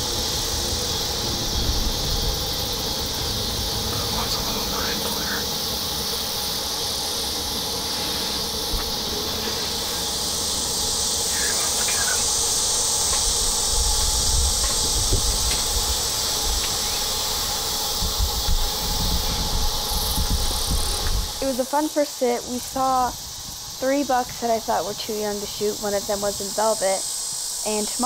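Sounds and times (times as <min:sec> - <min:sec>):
low rumbling: 0:00.0 - 0:21.7
crickets and insects chirping: 0:00.0 - 0:28.0.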